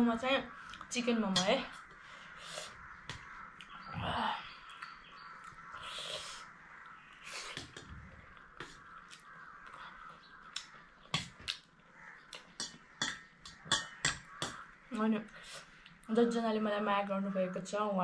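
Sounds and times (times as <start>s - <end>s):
chewing food: 6.8s - 14.6s
fork clinking on metal plate: 12.6s - 14.6s.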